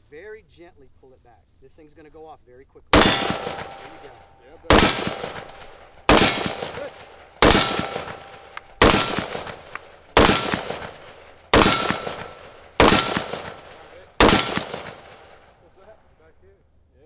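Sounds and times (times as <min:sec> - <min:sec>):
rifle shots: 0:02.9 - 0:15.6.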